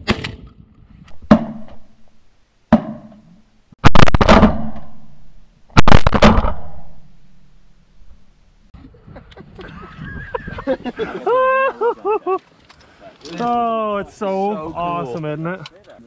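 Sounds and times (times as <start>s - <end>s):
shotgun shots: 3.8s - 7.2s.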